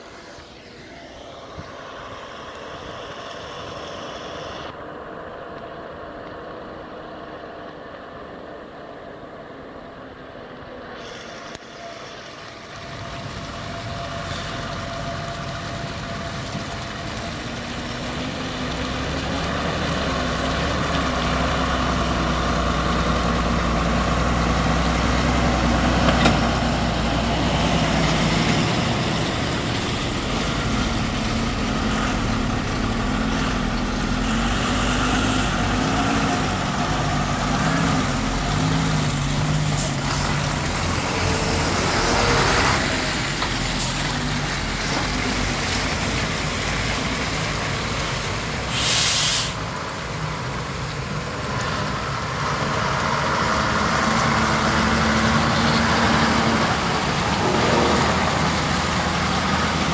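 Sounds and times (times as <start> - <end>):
truck diesel engines passing: 0.0 - 59.9
air brake hisses: 10.9 - 12.3, 48.7 - 49.6.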